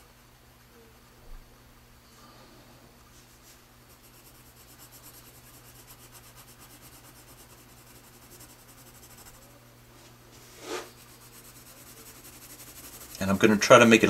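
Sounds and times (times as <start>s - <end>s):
low steady hum: 0.0s - 14.0s
pencil scratching on paper: 3.9s - 9.5s, 10.6s - 14.0s.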